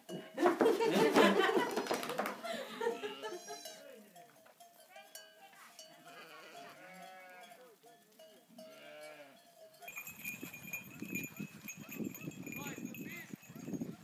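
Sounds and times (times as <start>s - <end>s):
wooden cart clattering: 0.4s - 2.4s
sheep and lambs bleating: 2.8s - 4.1s, 5.8s - 7.8s, 8.5s - 9.5s
high steady ringing: 8.6s - 13.6s.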